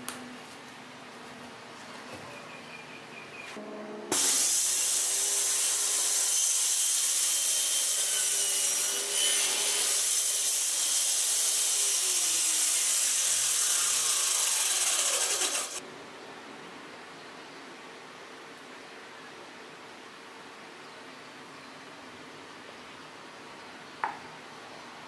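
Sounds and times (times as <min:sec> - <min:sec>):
circular saw cutting board: 0:04.1 - 0:15.8.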